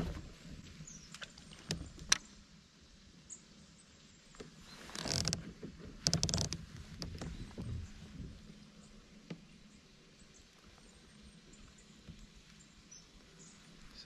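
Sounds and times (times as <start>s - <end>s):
knocks and clicks on kayak: 1.5s - 2.2s, 4.4s - 8.4s.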